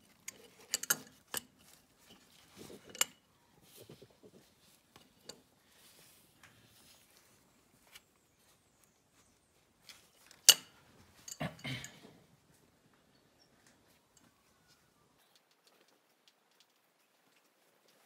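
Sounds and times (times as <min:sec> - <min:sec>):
wrench clicking and scraping on bolt: 0:00.0 - 0:03.2.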